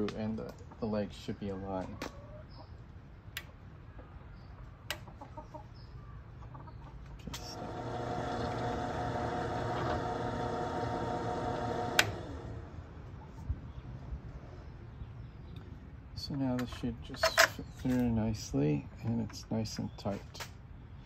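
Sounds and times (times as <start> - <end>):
drill press motor humming: 7.4 - 12.8.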